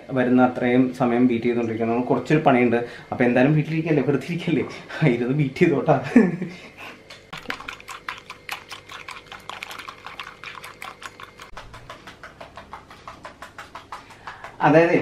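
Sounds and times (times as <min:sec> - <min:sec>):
whisk clicking against glass bowl: 0:07.4 - 0:14.8.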